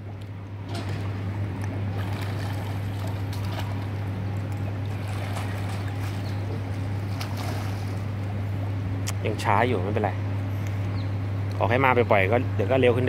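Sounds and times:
steady low hum: 0.0s - 13.0s
water splashing from swimming: 1.6s - 8.4s.

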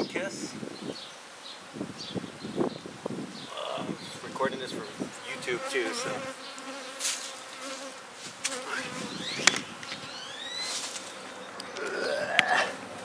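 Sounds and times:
bees buzzing: 4.9s - 13.0s.

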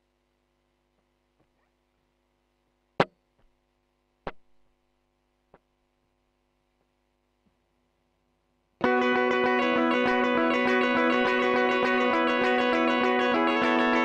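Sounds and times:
low mains hum: 0.0s - 8.9s.

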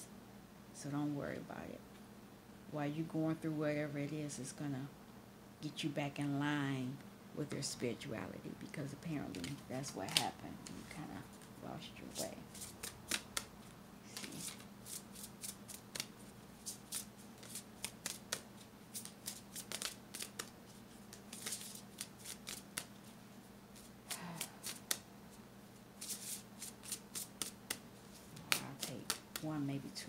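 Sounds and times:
faint steady hum: 0.0s - 30.0s
cards being shuffled by hand: 9.2s - 11.5s, 12.1s - 25.0s, 26.0s - 29.9s.

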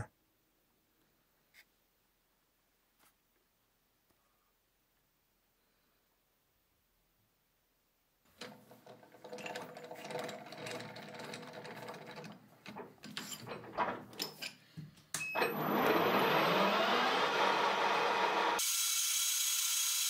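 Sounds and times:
lathe running: 15.5s - 18.7s.

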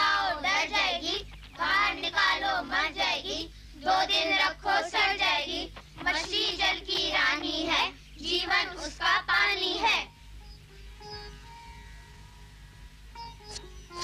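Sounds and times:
child singing in high voice: 0.0s - 10.1s.

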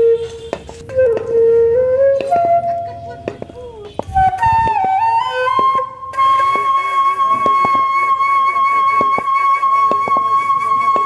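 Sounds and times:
flute-like long high note: 4.2s - 11.0s.

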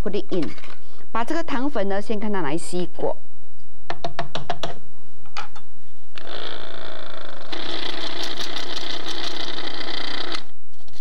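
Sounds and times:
small electric motor whirring: 6.2s - 11.0s.

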